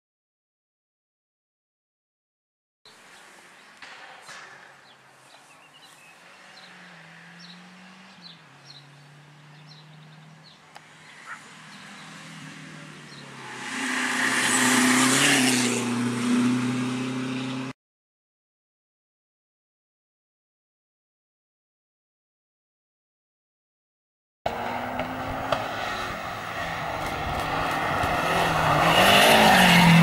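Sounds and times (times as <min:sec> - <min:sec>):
rally car engine passing: 0:03.6 - 0:17.7, 0:24.5 - 0:30.0.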